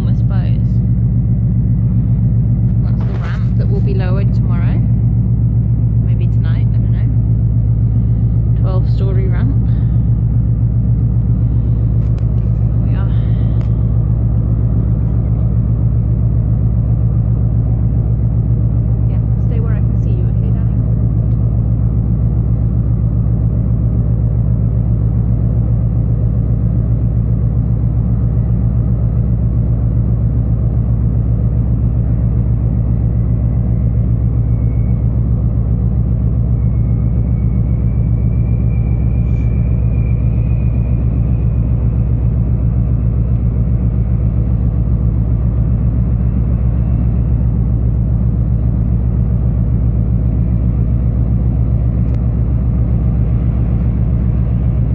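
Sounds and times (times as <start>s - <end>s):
ship engines rumbling drone: 0.0s - 54.9s
faint thin whistle: 36.5s - 41.6s.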